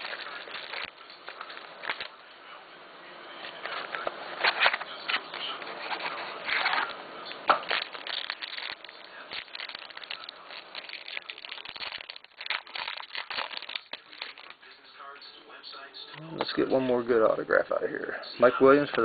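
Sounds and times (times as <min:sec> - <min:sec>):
foil wrapper tearing and crinkling: 0:00.0 - 0:02.2, 0:03.5 - 0:14.8.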